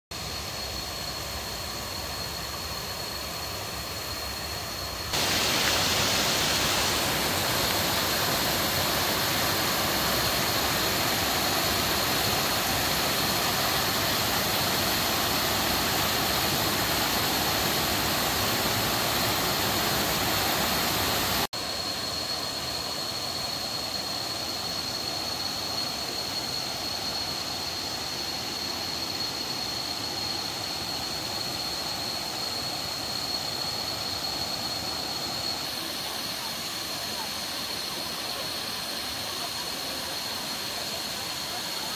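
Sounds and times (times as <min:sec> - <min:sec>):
waterfall rushing and splashing: 0:05.1 - 0:21.5.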